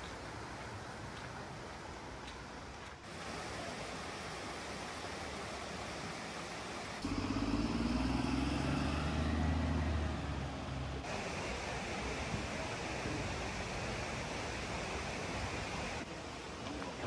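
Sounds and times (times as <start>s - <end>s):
steady outdoor hiss: 0.0s - 17.0s
bus engine idling: 7.0s - 13.9s.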